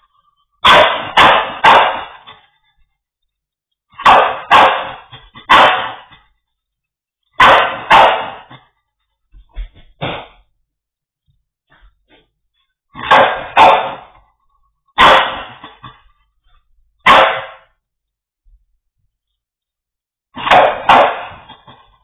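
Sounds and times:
dog barking: 0.0s - 2.5s, 3.9s - 6.3s, 7.4s - 8.7s, 13.0s - 14.3s, 15.0s - 16.1s, 17.0s - 17.8s, 20.4s - 21.9s.

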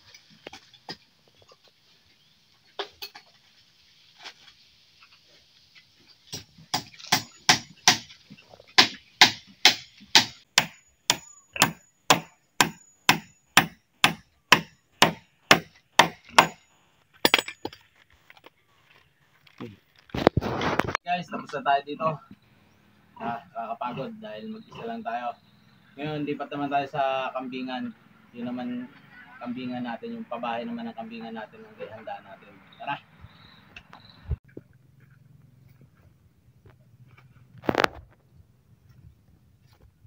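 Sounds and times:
hammer striking wood: 6.3s - 8.1s, 8.8s - 16.6s.

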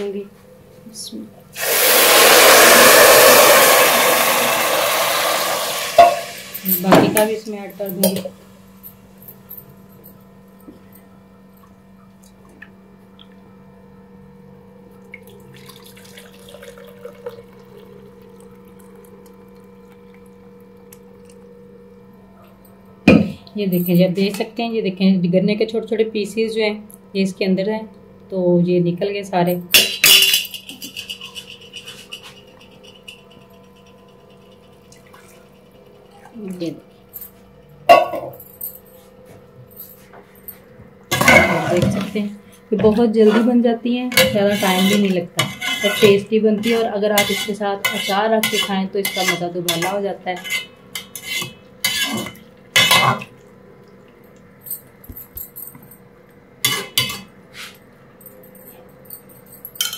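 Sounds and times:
pan sizzling and bubbling: 1.6s - 6.9s
faint steady hum: 3.4s - 59.9s
metal utensils clattering on pot: 29.8s - 34.4s, 44.2s - 53.2s, 56.7s - 57.3s.

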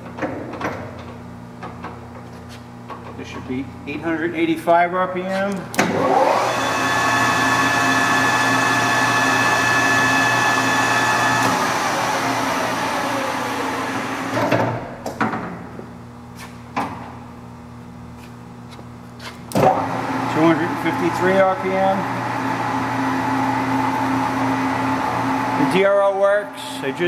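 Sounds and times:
lathe gear whine: 5.9s - 14.4s.

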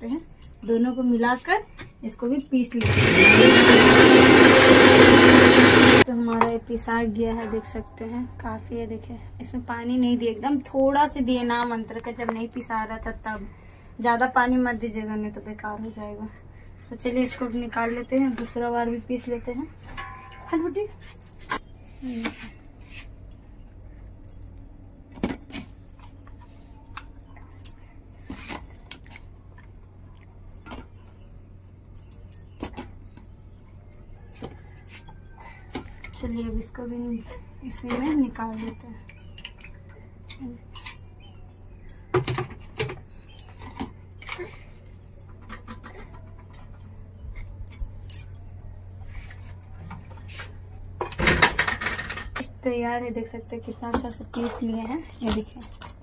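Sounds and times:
clinks of steel utensils and bangles: 17.0s - 21.6s, 40.3s - 42.1s.

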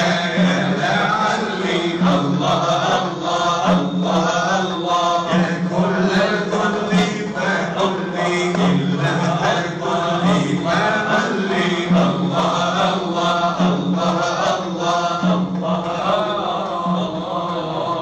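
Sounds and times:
men chanting together: 0.0s - 18.0s.

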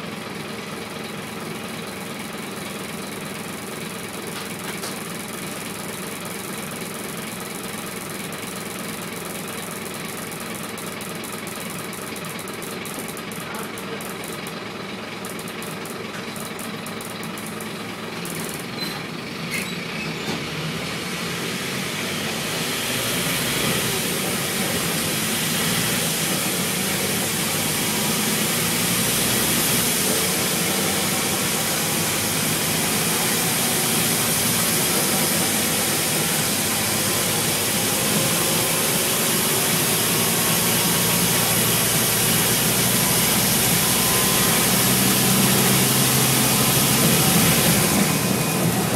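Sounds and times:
bus diesel engine: 0.0s - 48.9s
road noise: 15.0s - 48.9s.

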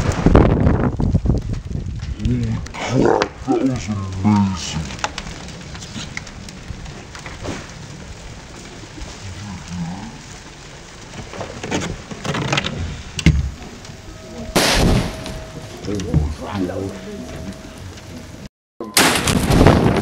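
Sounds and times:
scattered crackles: 0.0s - 20.0s
shotgun blast and explosion: 14.5s - 15.5s, 19.0s - 20.0s.

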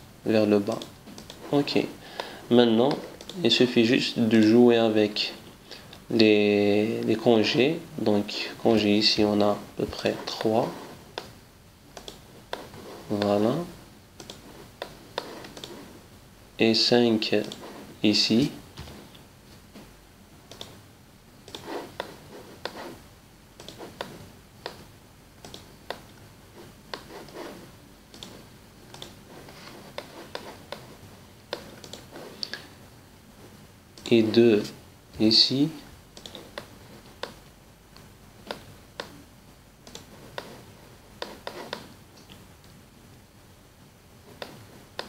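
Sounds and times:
faint room hiss: 0.0s - 45.0s
computer mouse clicking: 0.7s - 1.5s, 2.2s - 3.4s, 12.0s - 13.4s, 14.2s - 15.8s, 17.3s - 17.8s, 20.5s - 20.8s, 21.4s - 22.9s, 23.6s - 26.2s, 26.9s - 27.5s, 28.1s - 29.2s, 31.5s - 32.6s, 36.2s - 39.2s, 39.8s - 40.6s, 41.2s - 42.7s.

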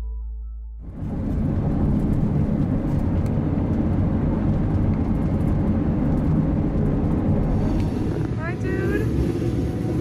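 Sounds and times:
road and engine rumble: 0.8s - 10.0s.

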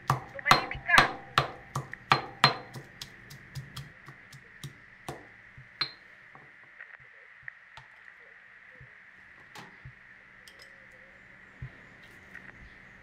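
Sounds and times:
mortar and pestle thud: 0.0s - 6.0s
faint high whine: 0.0s - 13.0s
sharp ringing clink: 5.8s - 6.0s.

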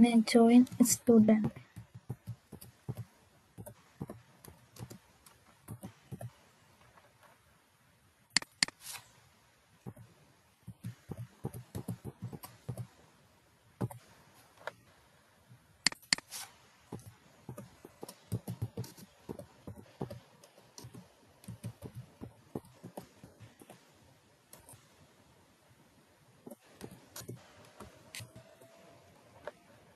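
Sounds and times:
computer keyboard typing: 10.8s - 12.9s, 17.0s - 23.8s.

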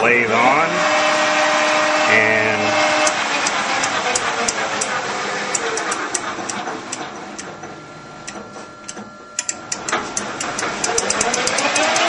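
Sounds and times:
faint steady whine: 0.0s - 11.6s
lathe running: 0.0s - 12.0s
speed dial clicking: 3.0s - 7.5s, 8.2s - 12.0s.

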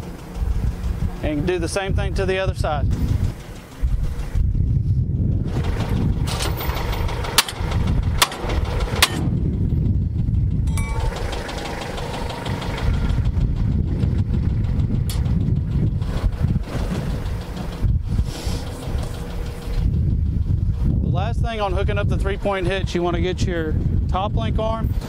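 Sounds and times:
tractor engine idling: 0.0s - 25.0s.

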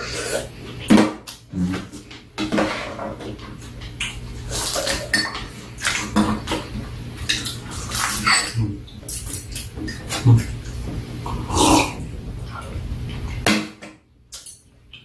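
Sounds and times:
spoon and chopsticks clinking on bowls: 7.3s - 10.2s.

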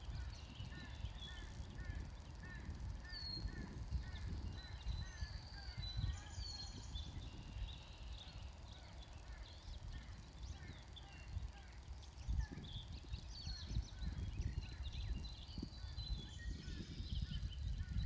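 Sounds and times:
bird chirping: 0.0s - 18.0s.

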